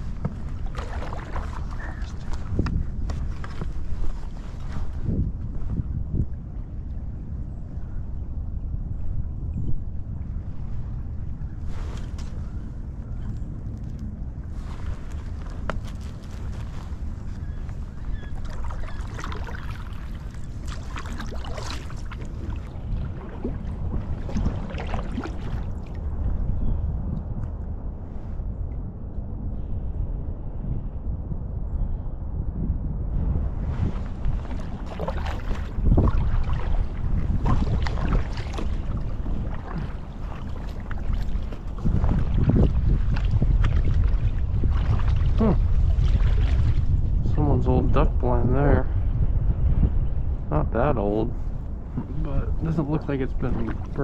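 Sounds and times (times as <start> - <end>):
water splashing and trickling: 0.0 - 5.2, 13.3 - 26.3, 33.9 - 47.4, 52.0 - 54.0
steady low rumble: 0.0 - 54.0.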